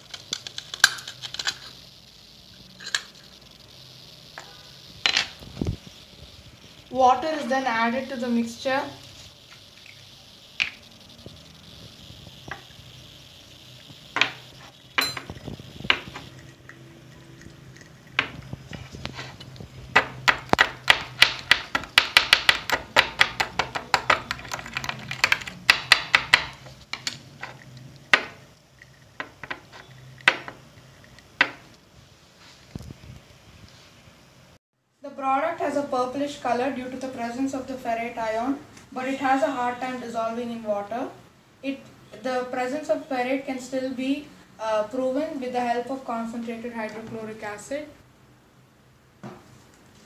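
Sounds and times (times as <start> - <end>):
metal tool clinking in glass jar: 15.0 - 15.4.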